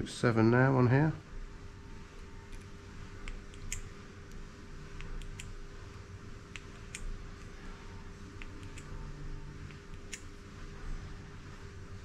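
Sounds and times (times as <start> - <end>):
steady low hum: 0.0 - 12.0
light metallic clicks: 8.4 - 9.0.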